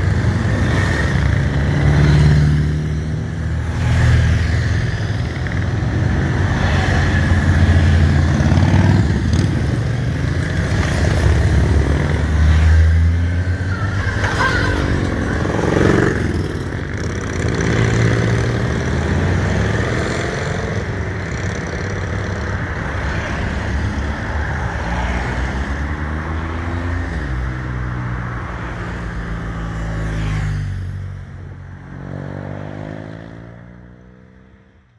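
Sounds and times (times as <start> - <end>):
motorcycles riding past: 0.0 - 27.3.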